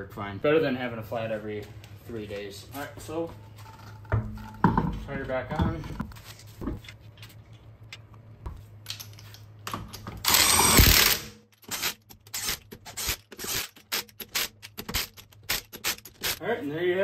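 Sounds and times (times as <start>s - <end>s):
impact wrench clicks and bursts: 10.2s - 16.4s.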